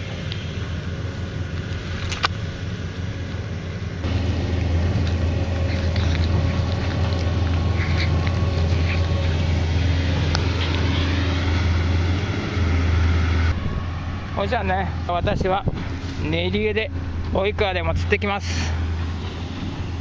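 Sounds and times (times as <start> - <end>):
boat engine drone: 0.0 - 20.0
cat chewing: 4.0 - 12.8.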